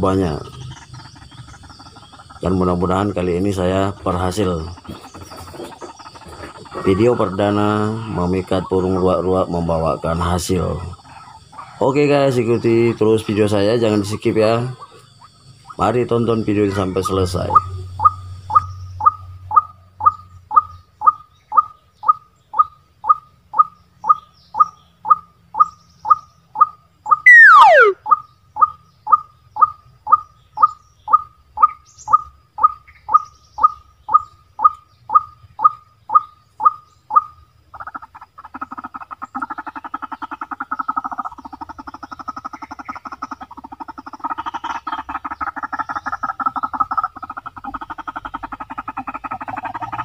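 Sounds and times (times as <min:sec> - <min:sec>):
fast croaking rattle: 0:00.0 - 0:50.0
loud falling whistle: 0:27.3 - 0:28.0
bird call repeated short note: 0:27.3 - 0:28.1.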